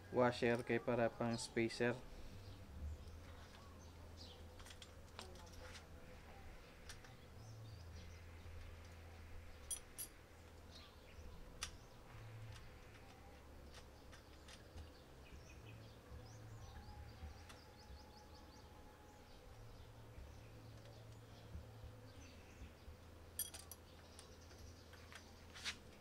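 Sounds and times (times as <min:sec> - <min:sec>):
metal clicks of allen key and bolt: 0:23.4 - 0:24.3.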